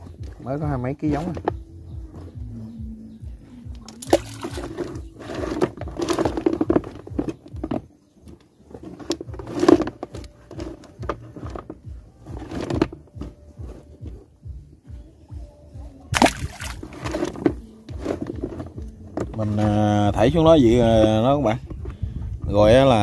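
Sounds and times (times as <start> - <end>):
clams splashing into water: 16.2 - 16.9.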